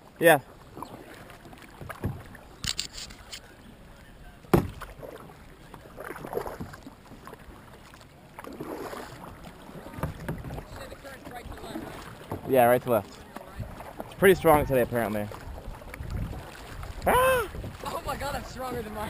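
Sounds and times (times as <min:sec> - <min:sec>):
paddle splashing into water: 0:00.5 - 0:19.0
paddle knocks: 0:01.2 - 0:02.4, 0:04.5 - 0:05.2, 0:06.0 - 0:07.4, 0:08.4 - 0:19.0.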